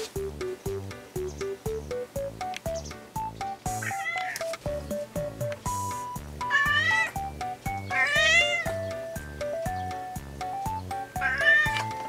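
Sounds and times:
background music with steady beat: 0.0 - 12.0
cat meowing: 3.8 - 4.4, 6.4 - 7.2, 7.9 - 8.8, 11.2 - 11.9.

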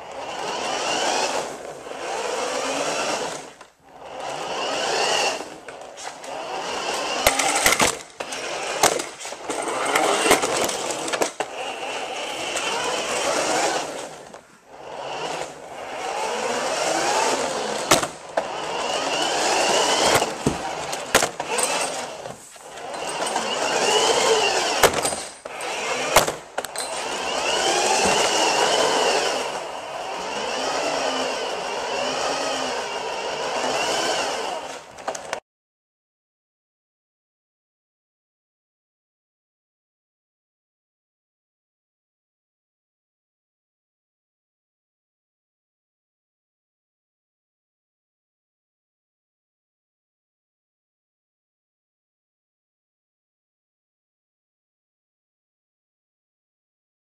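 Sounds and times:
toy car electric motor whining: 0.0 - 35.4
toy car clicking and knocking: 7.2 - 11.5.

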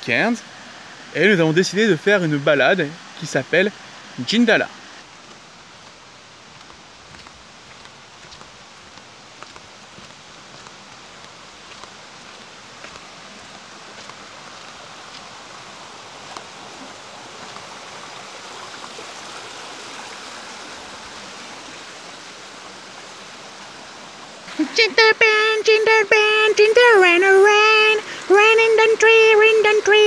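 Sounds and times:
steady rushing hiss: 0.0 - 30.0
faint ticks: 6.6 - 14.2.

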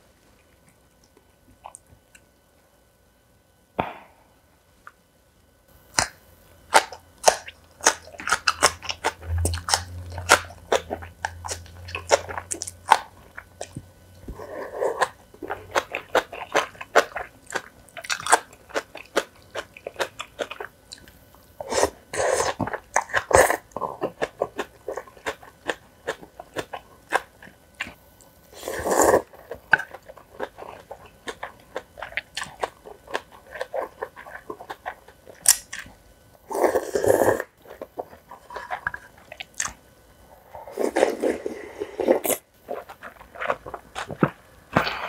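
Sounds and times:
person chewing and crunching food: 5.9 - 45.0
mouth noise: 9.2 - 12.3.

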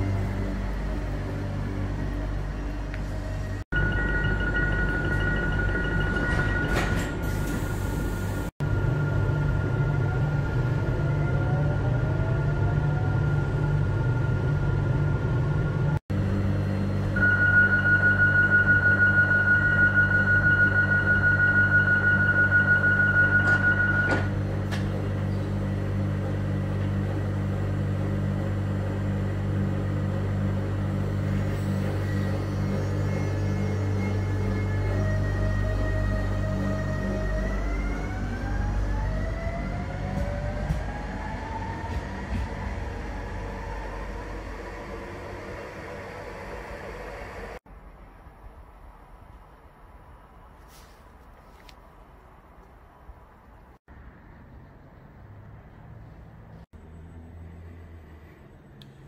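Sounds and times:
train motor whine rising: 0.0 - 47.6
train electrical hum: 0.0 - 54.1
rapid electronic beeping: 3.7 - 6.8
door warning beeps: 17.2 - 24.4.

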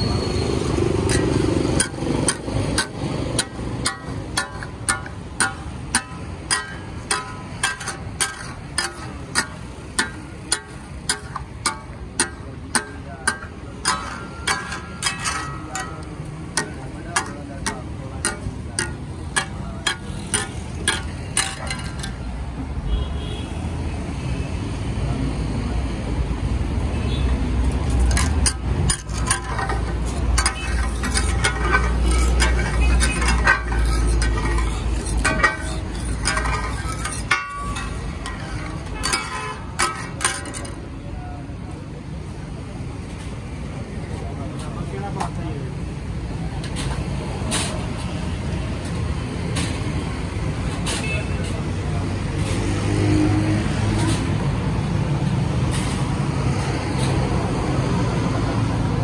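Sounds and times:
steel spatulas clacking on griddle: 0.5 - 22.4, 27.7 - 41.0.

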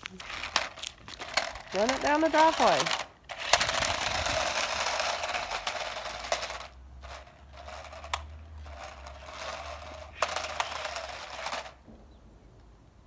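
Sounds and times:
toy car motor whirring: 0.0 - 11.8.

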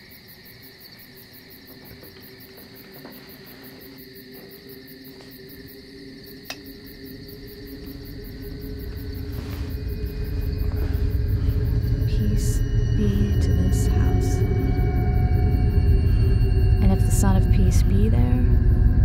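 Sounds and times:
crickets chirping: 0.0 - 19.0
low steady drone: 5.2 - 19.0.

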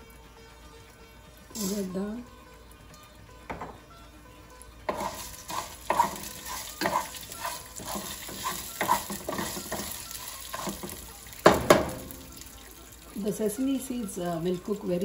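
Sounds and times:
spices sizzling in hot oil: 1.5 - 2.3, 4.6 - 15.0
wooden spatula scraping a pan: 4.9 - 11.0.

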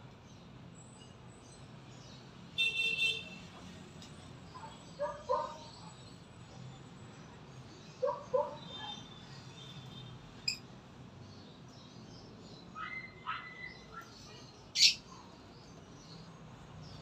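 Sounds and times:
birds calling and chirping: 4.0 - 9.8, 10.4 - 17.0.

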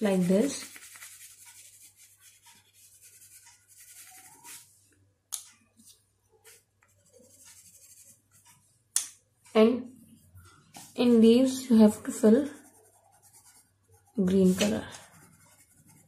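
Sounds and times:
crayon rubbing on paper: 0.0 - 4.7, 12.4 - 16.0.

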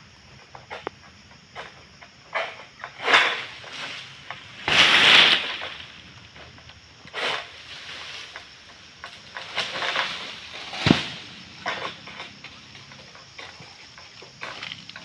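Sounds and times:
sickle rasping through palm frond: 3.0 - 5.9
fronds rustling: 3.0 - 15.0.

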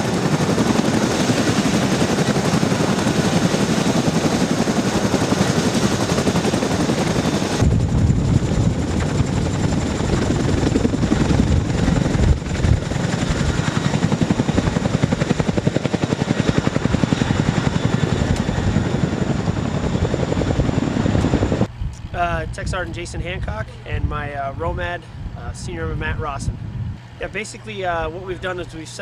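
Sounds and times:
helicopter rotor blades thudding: 0.0 - 22.1.

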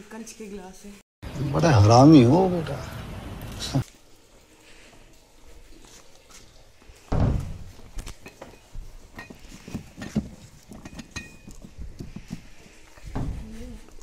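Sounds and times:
glass tumblers clinking: 8.1 - 12.3.

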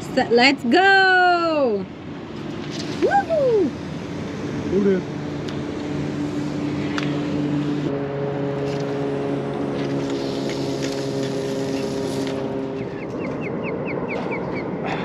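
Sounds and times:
boat motor running: 3.0 - 15.0.

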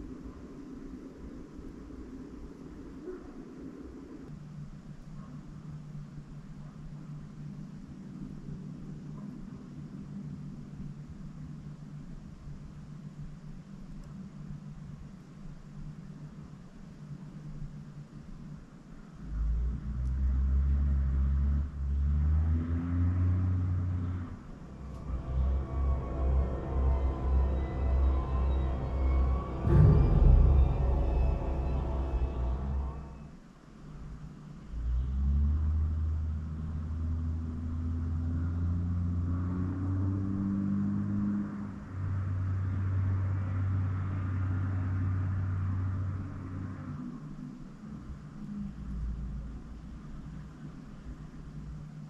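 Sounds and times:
deep low rumble: 19.2 - 33.4
faint hum bending in pitch: 23.6 - 33.3.

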